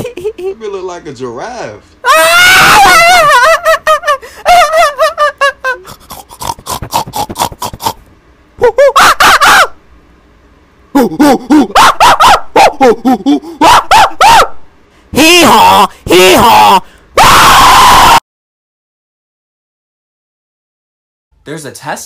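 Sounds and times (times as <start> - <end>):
man giggling in high voice: 0.0 - 0.6, 2.9 - 6.2, 8.6 - 9.3, 10.9 - 13.8
loud rapid cackling: 2.1 - 8.0, 8.6 - 9.8, 11.1 - 14.5, 15.2 - 18.2.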